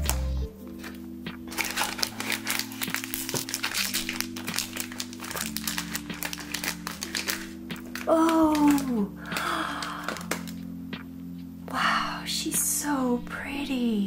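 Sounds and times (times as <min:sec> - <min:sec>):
music with sustained chords: 0:00.0 - 0:14.0
foil bag crinkling: 0:00.7 - 0:10.6.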